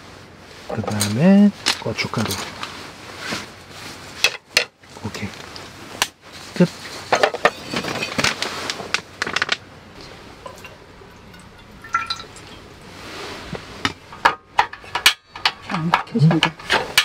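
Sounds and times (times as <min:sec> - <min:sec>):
water pouring into metal pan: 0:10.4 - 0:12.9.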